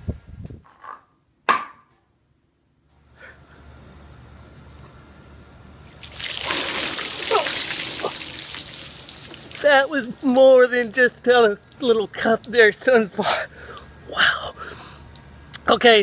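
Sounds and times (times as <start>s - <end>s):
sharp knock: 1.5s - 1.9s
water pouring and splashing: 5.9s - 10.6s
man gasping: 13.2s - 15.0s.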